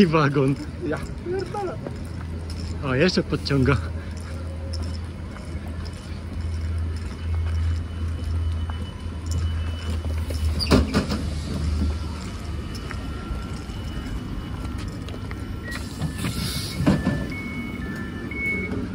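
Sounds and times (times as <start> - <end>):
train low hum: 0.0 - 18.9
door electronic beeps: 8.2 - 18.9
train clunk: 8.6 - 18.9
hiss of air: 15.7 - 16.9.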